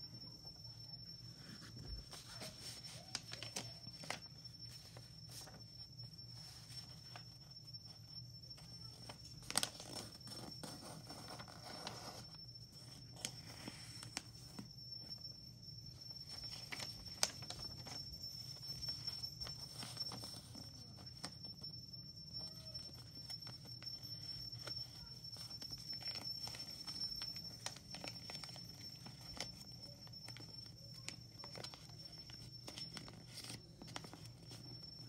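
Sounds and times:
faint high whine: 0.0 - 35.0
paper rustling and crackling: 1.2 - 8.0, 8.7 - 14.7, 16.2 - 21.6, 22.4 - 35.0.

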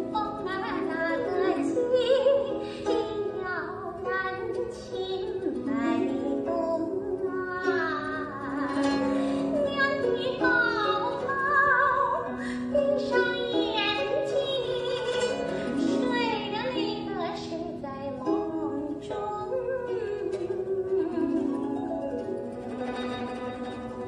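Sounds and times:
plucked strings: 0.0 - 24.0.

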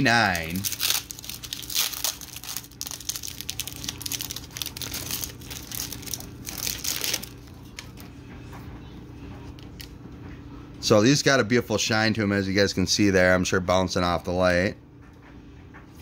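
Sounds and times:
foil wrapper crinkling: 0.0 - 8.0
faint steady hum: 0.0 - 16.0.

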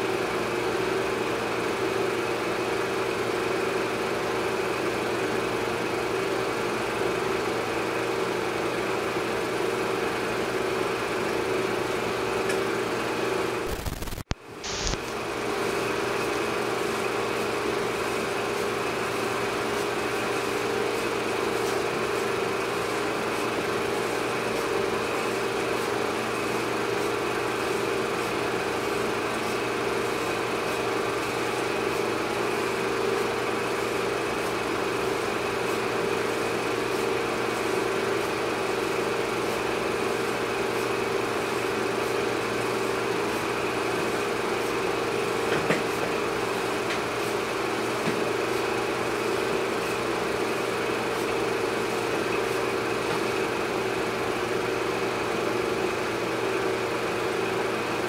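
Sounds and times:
hiss: 13.7 - 15.0.

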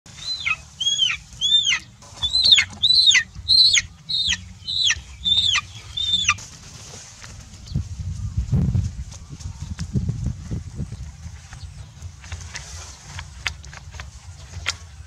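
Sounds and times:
chicken distressed calls: 0.1 - 6.4.

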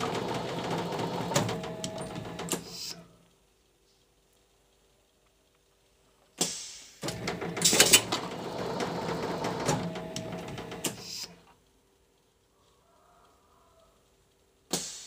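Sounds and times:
machine clattering and clicking: 0.0 - 3.0, 6.4 - 11.4
compressed air hiss: 2.6 - 3.1, 6.4 - 7.1, 10.9 - 11.4, 14.7 - 15.0.

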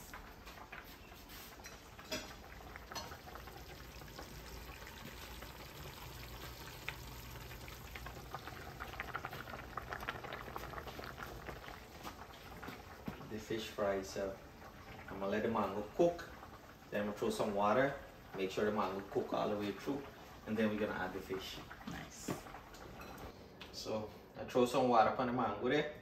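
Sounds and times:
curry sizzling and bubbling: 0.0 - 24.0
rice boiling in pot: 0.0 - 25.6.

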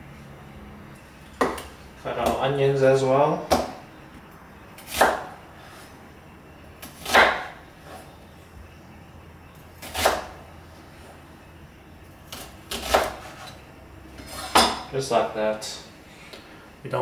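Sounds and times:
knife slicing onion on board: 4.8 - 5.3, 6.8 - 8.0, 9.8 - 10.4, 12.3 - 13.6.

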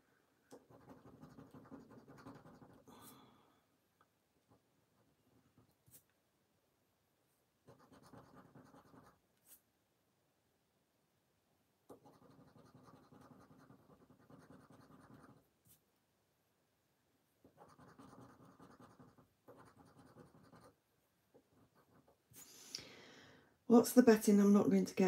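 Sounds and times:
scratching a scratch card: 0.5 - 2.9, 7.7 - 9.6, 11.9 - 15.8, 17.5 - 20.8.

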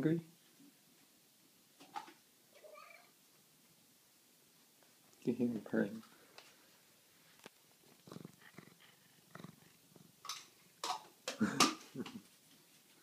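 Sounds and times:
cat purring: 7.3 - 11.0.

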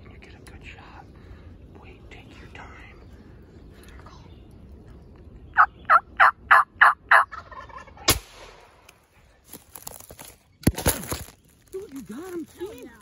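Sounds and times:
turkey yelps: 5.6 - 8.1
sharp crack: 8.0 - 9.0.

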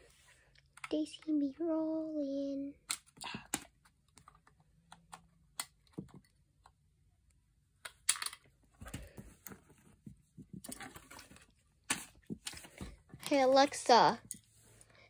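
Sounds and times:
plastic bricks clicking: 7.8 - 8.5.

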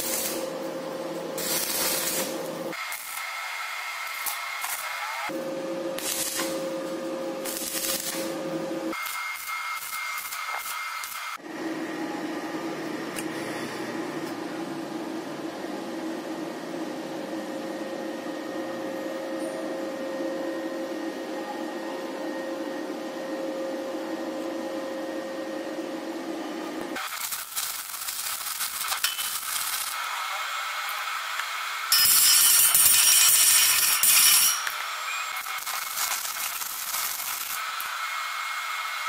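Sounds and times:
arc welding crackle: 0.0 - 5.4, 6.0 - 11.4, 27.0 - 38.9.

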